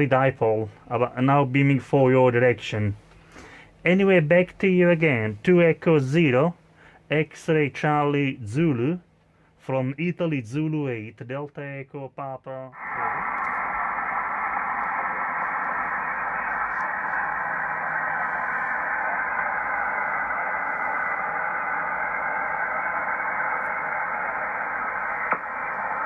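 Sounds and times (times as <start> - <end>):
radio receiver hiss: 12.7 - 26.0.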